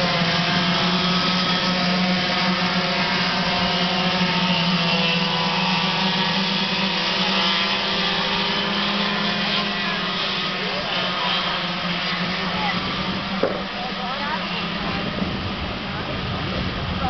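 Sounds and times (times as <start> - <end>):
go-kart engines buzzing: 0.0 - 17.0.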